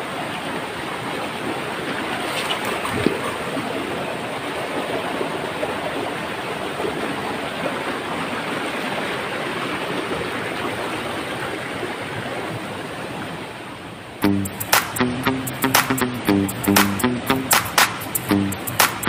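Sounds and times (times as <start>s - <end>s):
stream splashing over rocks: 0.5s - 13.2s.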